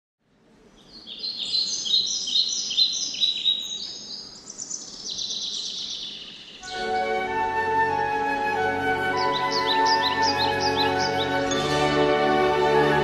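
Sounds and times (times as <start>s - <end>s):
bird chirping and trilling: 0.8s - 8.2s, 8.9s - 11.9s.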